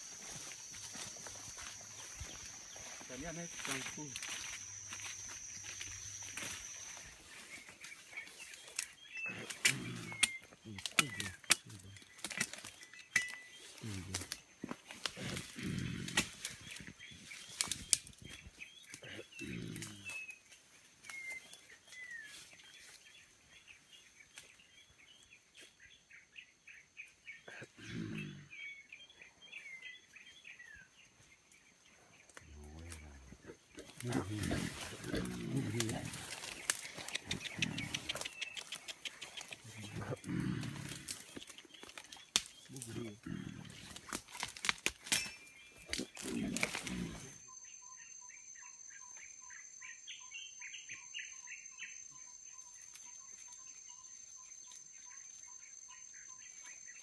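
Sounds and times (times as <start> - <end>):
leaves and twigs rustling: 0.0 - 25.8, 31.1 - 47.4
birds chirping: 0.0 - 57.0
gorilla grunts: 9.2 - 11.9, 15.0 - 16.5, 19.0 - 20.2, 27.4 - 28.8, 32.8 - 41.4, 42.7 - 44.1, 45.9 - 47.4.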